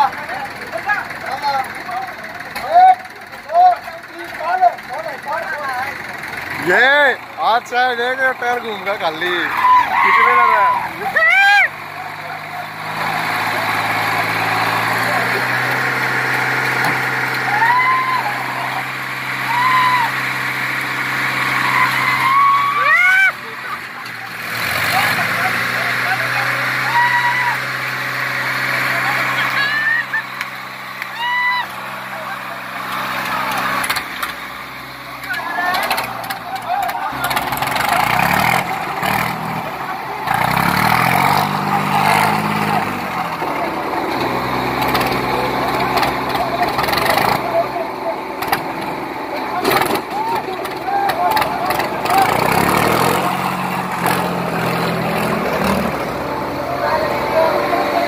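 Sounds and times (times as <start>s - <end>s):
tractor diesel engine idling: 0.0s - 58.0s
people shouting: 9.4s - 12.7s, 17.4s - 20.4s, 21.4s - 23.8s, 26.1s - 27.7s, 28.9s - 30.3s, 31.0s - 32.5s, 35.2s - 37.4s, 49.8s - 53.2s.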